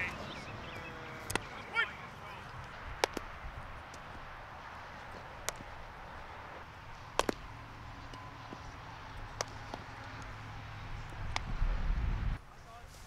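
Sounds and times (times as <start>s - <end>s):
outdoor air noise: 0.0s - 13.0s
bat hitting ball: 1.2s - 4.2s, 4.9s - 5.8s, 7.0s - 11.7s
ball popping into glove: 3.0s - 3.3s, 7.2s - 7.4s, 9.3s - 9.9s.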